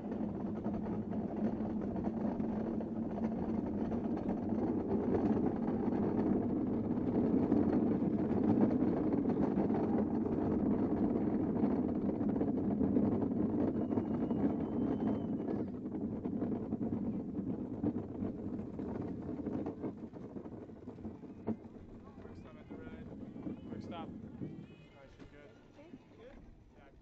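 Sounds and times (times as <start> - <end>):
wheels rolling over asphalt: 0.0 - 27.0.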